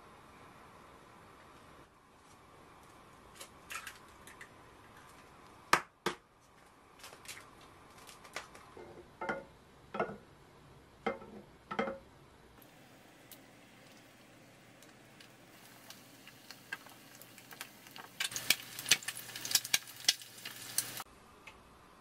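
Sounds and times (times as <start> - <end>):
kitchen handling knocks and clicks: 9.2 - 10.2, 11.1 - 12.0.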